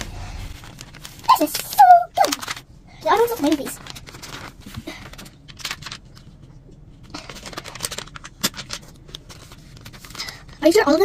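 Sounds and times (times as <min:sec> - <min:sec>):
plastic bag rustling: 0:00.0 - 0:06.3.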